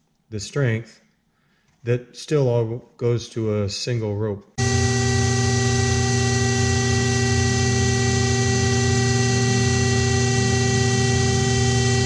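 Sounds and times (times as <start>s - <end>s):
electric pump humming and whining: 4.6s - 12.0s.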